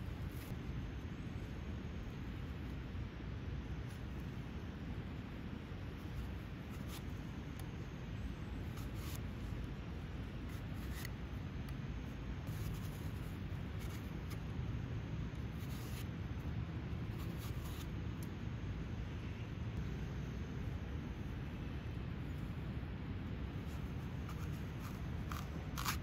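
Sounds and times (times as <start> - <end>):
blade scraping apple skin: 10.3 - 11.2, 23.9 - 26.0.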